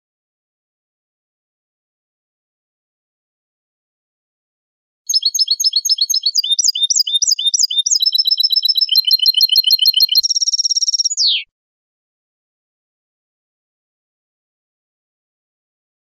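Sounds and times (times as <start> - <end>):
goldfinch singing: 5.1 - 11.5.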